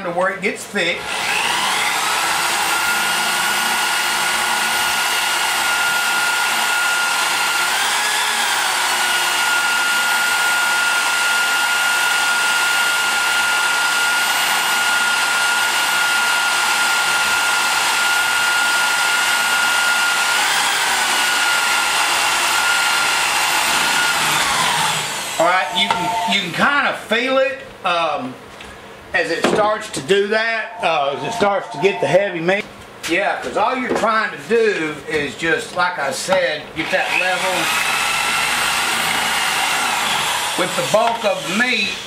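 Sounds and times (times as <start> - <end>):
electric drill whining under load: 1.0 - 26.6, 30.6 - 32.2, 36.8 - 42.0.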